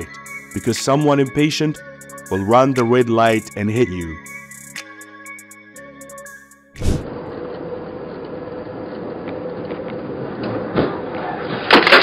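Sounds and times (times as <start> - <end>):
background music: 0.0 - 7.0.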